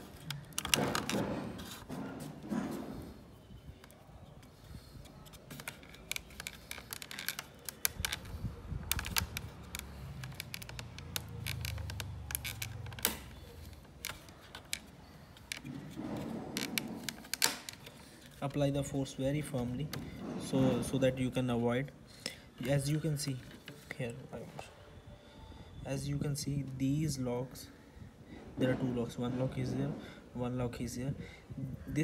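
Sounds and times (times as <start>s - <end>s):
plastic clips clicking: 0.0s - 1.3s, 5.0s - 15.8s.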